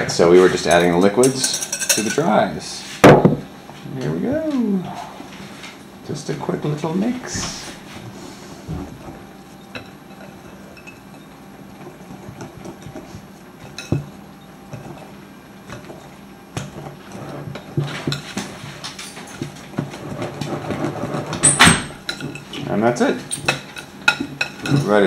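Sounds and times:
whisk stirring batter: 7.5s - 21.4s.

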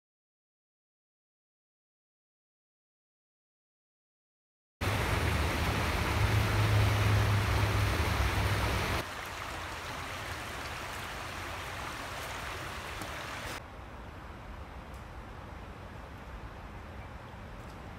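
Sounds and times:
creek rushing with deep rumble: 4.8s - 13.6s
small stream running: 4.8s - 13.6s.

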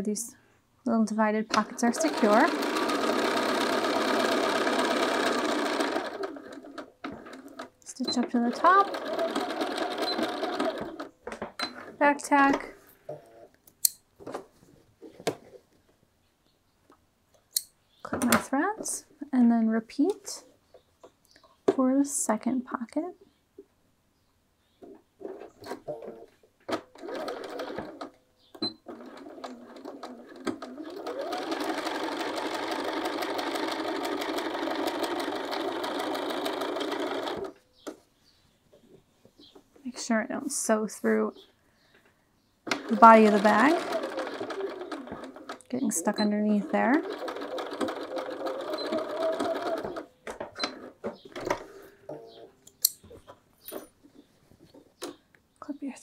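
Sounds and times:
sewing machine stitching: 1.5s - 12.6s, 25.3s - 37.6s, 42.7s - 51.8s.

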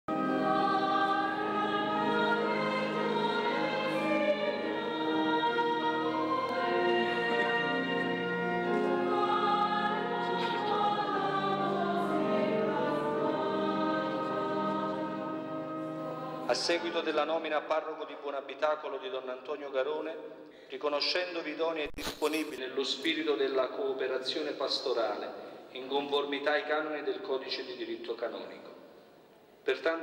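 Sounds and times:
choir singing long notes: 0.1s - 16.5s.

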